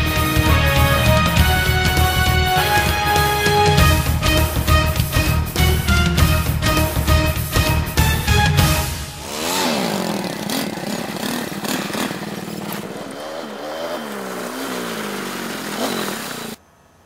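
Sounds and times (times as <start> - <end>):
quad bike engines revving: 8.6 - 16.6.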